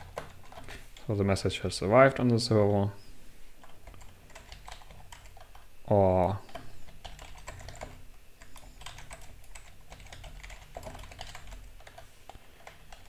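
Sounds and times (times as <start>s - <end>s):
keyboard typing: 0.0s - 1.1s, 3.6s - 5.7s, 6.4s - 13.0s.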